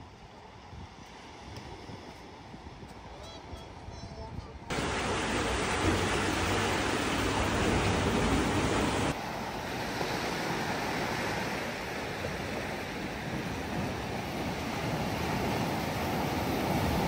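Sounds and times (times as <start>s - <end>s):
steady rushing noise: 4.7s - 9.6s.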